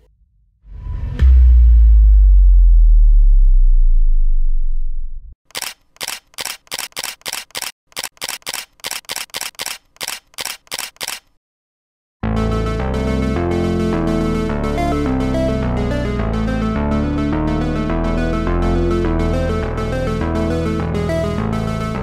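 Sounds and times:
deep bass boom: 0.6 - 5.3
camera shutter clicks: 5.5 - 11.4.

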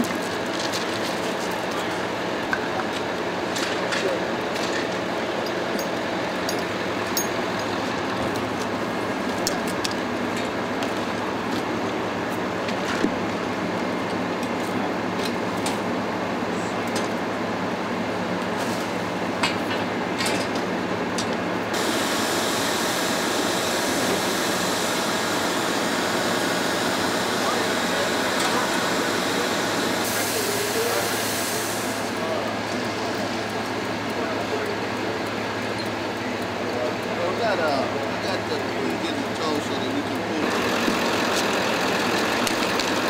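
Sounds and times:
fire hose spraying water: 21.7 - 43.0.

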